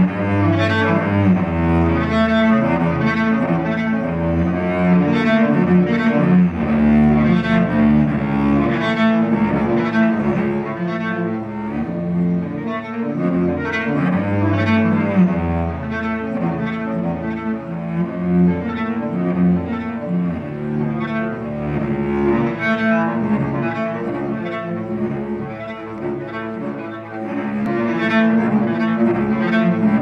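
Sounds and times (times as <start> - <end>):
bowed cello: 0.0 - 30.0.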